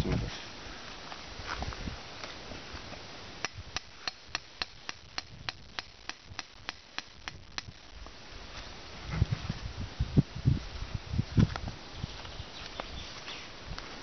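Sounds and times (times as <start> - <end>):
hammer tapping metal rod: 3.4 - 7.7.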